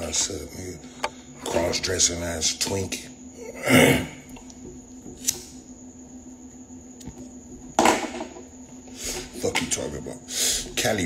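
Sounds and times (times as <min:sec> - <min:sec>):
low steady hum: 0:00.0 - 0:11.0
man inhaling smoke: 0:08.9 - 0:09.3, 0:10.3 - 0:10.7.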